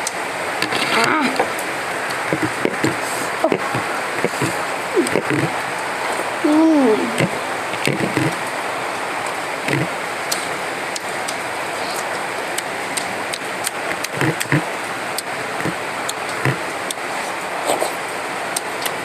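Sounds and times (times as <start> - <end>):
chewing and lip-smacking: 9.7 - 14.6, 15.2 - 17.0, 17.6 - 19.0.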